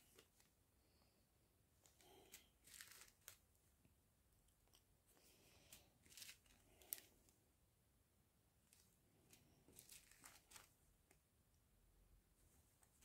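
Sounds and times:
plastic bags crinkling: 2.2 - 3.4, 6.0 - 7.1, 9.7 - 10.7.

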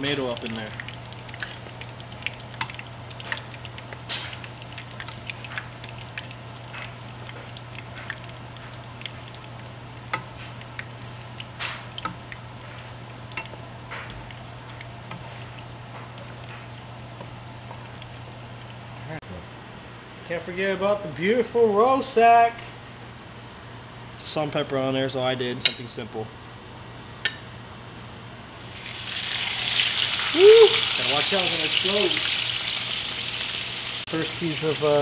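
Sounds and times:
sauce sizzling and popping: 0.0 - 19.0, 28.4 - 35.0
wooden spatula stirring: 0.8 - 18.8.

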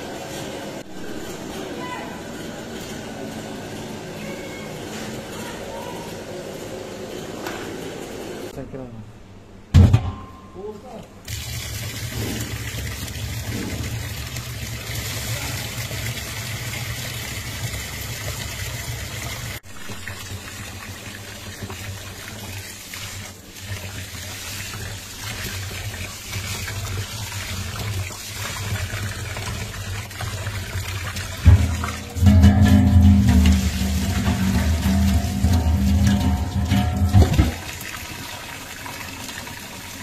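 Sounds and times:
tap water splashing into pot: 19.3 - 40.0.

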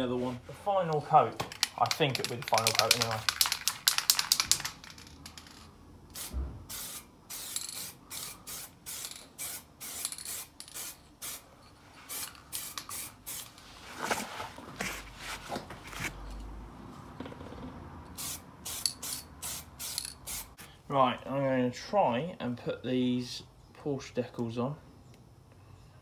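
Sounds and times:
aerosol spray hissing bursts: 6.1 - 11.4, 12.1 - 13.5.

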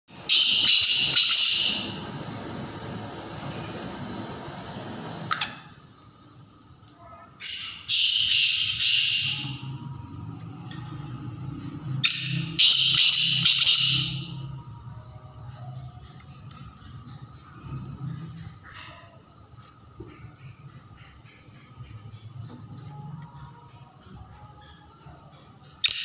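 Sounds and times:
francolin calling: 0.1 - 4.2, 7.0 - 10.5, 12.0 - 14.6.

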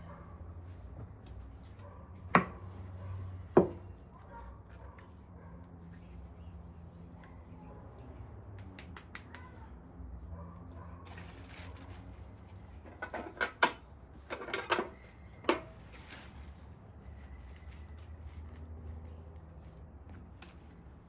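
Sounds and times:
hand slapping dough: 8.4 - 9.7
plastic rustle: 11.0 - 12.9, 15.0 - 21.0.

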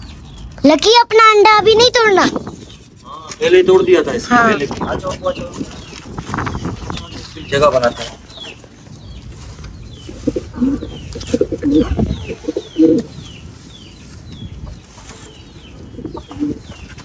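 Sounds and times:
high falling bird chirps: 0.0 - 17.0
pigeons cooing: 9.9 - 13.3, 14.7 - 17.0.

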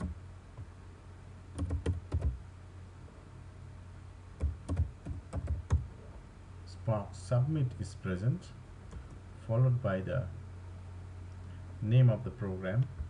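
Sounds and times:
keyboard typing: 1.5 - 2.4, 4.4 - 5.8.

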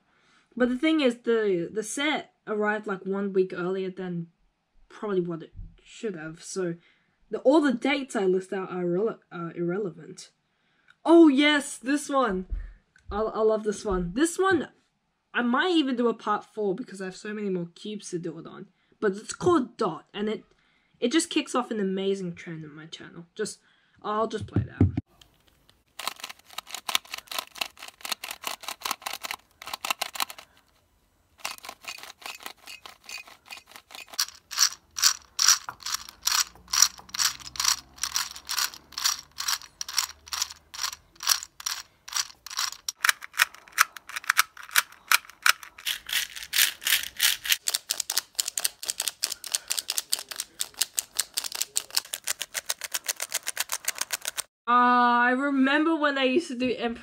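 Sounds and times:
puzzle cube clicking: 25.2 - 30.8, 31.4 - 54.5.

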